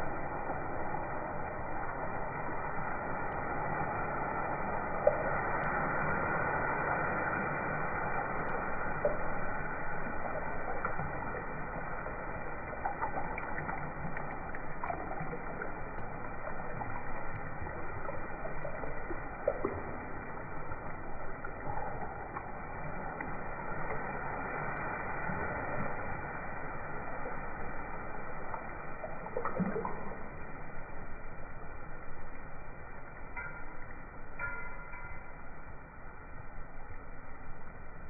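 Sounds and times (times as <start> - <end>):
steady hiss: 0.0 - 29.4.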